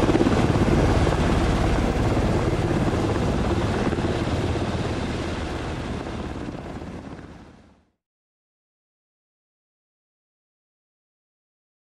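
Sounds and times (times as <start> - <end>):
helicopter rotor and turbine: 0.0 - 8.0.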